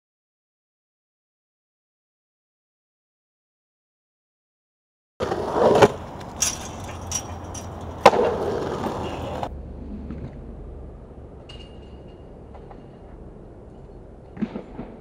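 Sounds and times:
skateboard clacks: 5.2 - 10.4, 14.2 - 15.0
skateboard rolling on asphalt: 5.2 - 11.4.

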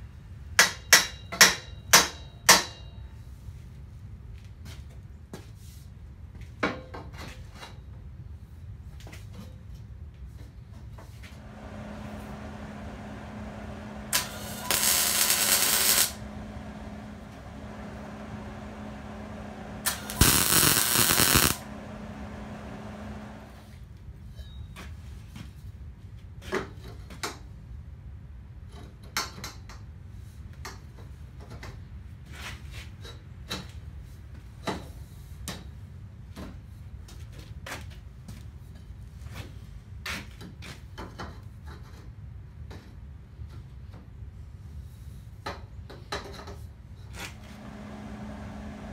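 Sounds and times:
steady low hum: 11.3 - 23.8, 47.2 - 48.9
loud hissing bursts: 11.4 - 23.7.

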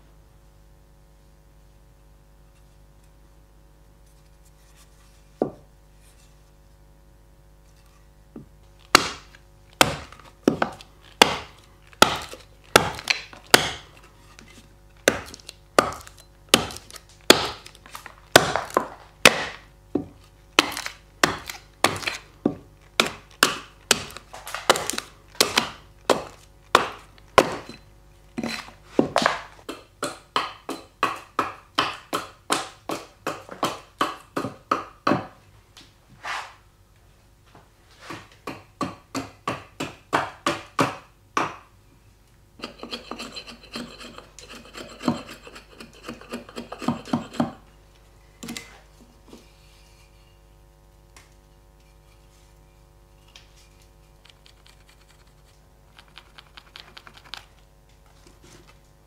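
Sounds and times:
axe chopping wood: 8.9 - 14.0, 15.0 - 27.7, 29.0 - 35.3, 38.4 - 41.7.

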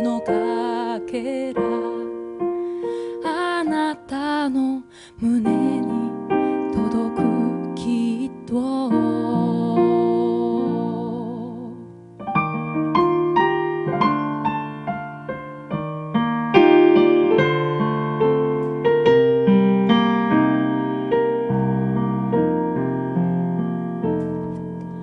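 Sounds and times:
piano playing a flowing run: 5.4 - 25.0.

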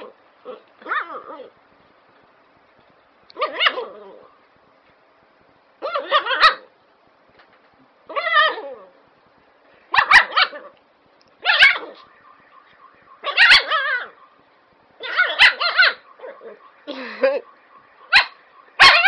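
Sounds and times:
dog barking long wavering barks: 11.4 - 12.2, 13.2 - 14.3, 15.0 - 16.9, 18.0 - 19.0.

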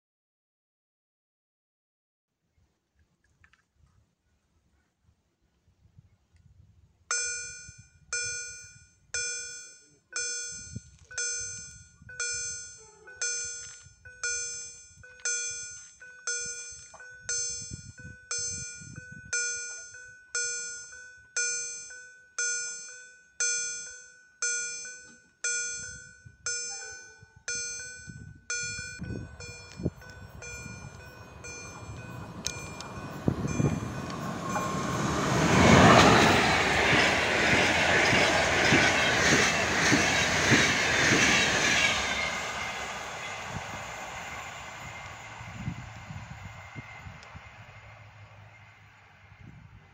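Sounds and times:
level crossing bell ringing: 7.1 - 37.1
approaching train rushing: 28.6 - 49.9.

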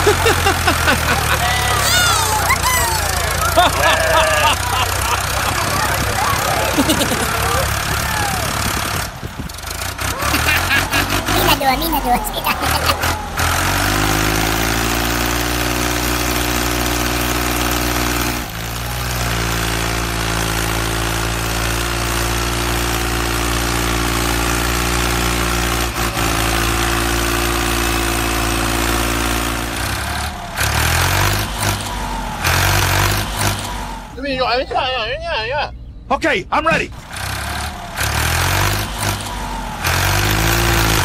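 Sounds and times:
engine idling: 0.0 - 11.4.

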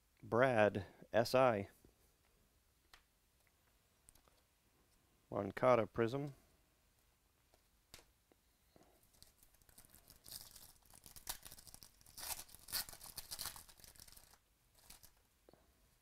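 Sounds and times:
foil wrapper tearing and crinkling: 9.2 - 15.2.

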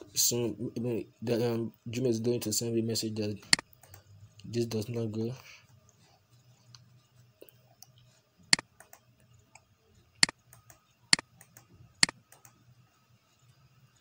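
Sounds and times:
faint low hum: 0.0 - 14.0
computer mouse clicking: 3.5 - 4.1, 8.5 - 12.6.

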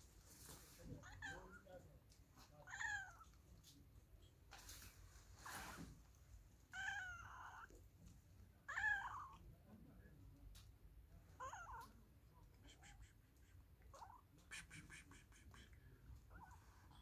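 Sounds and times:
cat meowing: 0.9 - 1.7, 2.5 - 3.4, 6.7 - 7.8, 8.6 - 9.4, 11.4 - 12.0, 13.9 - 14.4.

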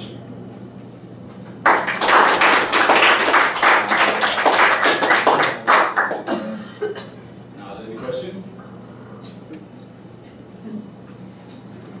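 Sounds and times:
audience applause: 1.6 - 6.3.

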